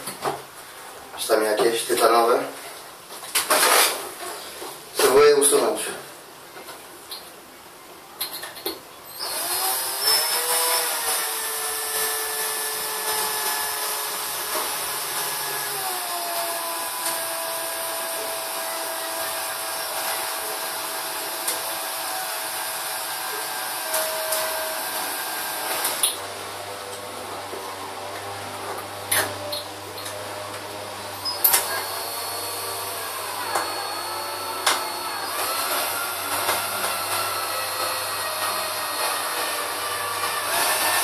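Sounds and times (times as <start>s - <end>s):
small electric drill whining: 9.1s - 41.0s.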